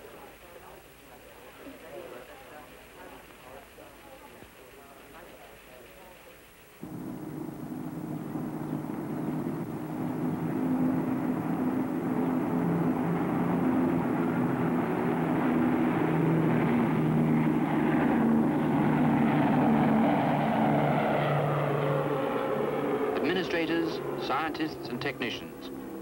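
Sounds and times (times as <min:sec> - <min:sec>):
propeller airliner engine drone: 0:06.8 - 0:26.0.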